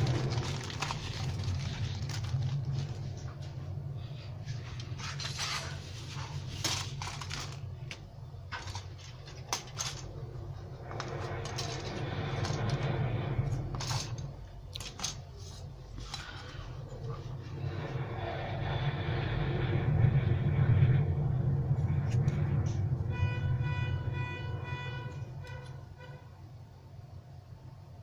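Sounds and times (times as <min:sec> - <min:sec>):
plastic bag rustling: 0:00.0 - 0:03.6, 0:04.6 - 0:10.2
steady low hum: 0:00.0 - 0:28.0.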